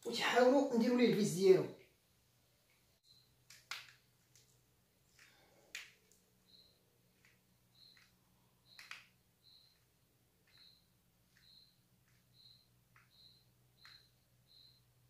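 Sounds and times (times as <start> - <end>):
small plastic parts clicking: 2.7 - 14.8.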